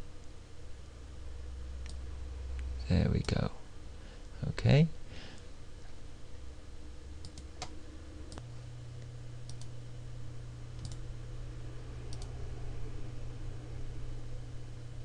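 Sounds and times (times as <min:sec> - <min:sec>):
low hum: 0:00.0 - 0:15.0
computer mouse clicking: 0:07.2 - 0:08.4, 0:09.5 - 0:09.7, 0:10.8 - 0:11.0, 0:12.1 - 0:12.3.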